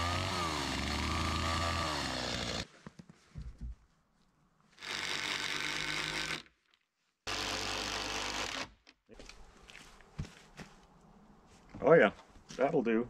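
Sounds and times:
cordless drill running: 0.0s - 2.7s, 4.8s - 6.5s, 7.3s - 8.7s.

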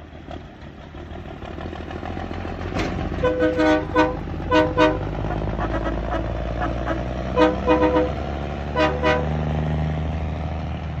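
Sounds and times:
diesel truck engine running: 0.0s - 11.0s
truck train horn blasts: 3.2s - 9.6s.

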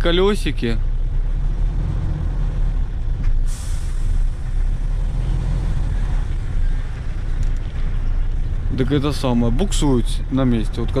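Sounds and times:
diesel truck engine running: 0.0s - 11.0s
compressed air hiss: 3.5s - 4.3s.

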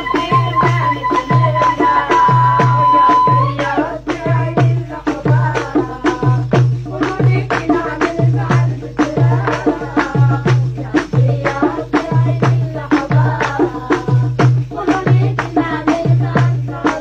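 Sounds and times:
folk melody: 0.0s - 3.7s
goblet drums beating: 0.0s - 17.0s.

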